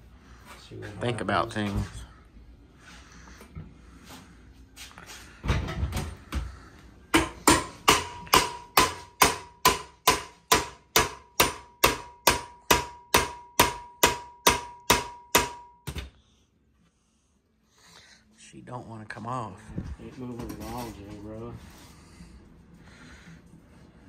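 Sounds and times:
hammer striking metal bolt: 0:07.2 - 0:16.0.

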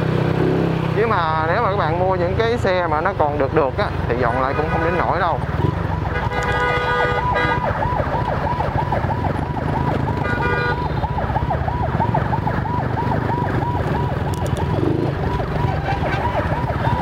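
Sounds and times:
road and wind rumble: 0:00.0 - 0:17.0
electronic siren yelping: 0:05.7 - 0:17.0
vehicle horn: 0:06.1 - 0:07.6, 0:10.2 - 0:11.0.

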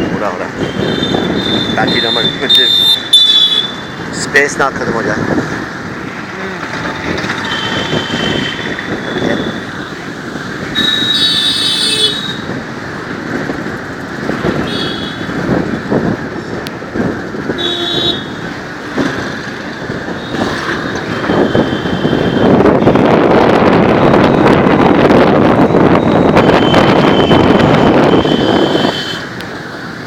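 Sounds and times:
road noise: 0:00.0 - 0:30.0
vehicle horns honking: 0:00.6 - 0:03.9, 0:07.4 - 0:09.8, 0:10.7 - 0:12.5, 0:14.6 - 0:15.3, 0:17.5 - 0:19.2, 0:20.1 - 0:23.2, 0:25.9 - 0:29.4.

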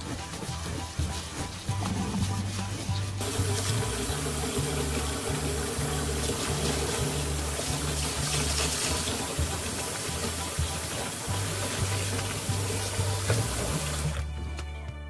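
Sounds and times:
hand swishing rice in water: 0:03.2 - 0:14.2.

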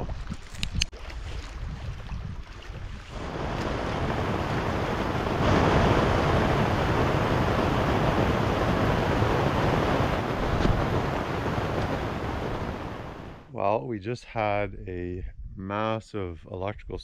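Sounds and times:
wind rushing: 0:03.1 - 0:13.5.

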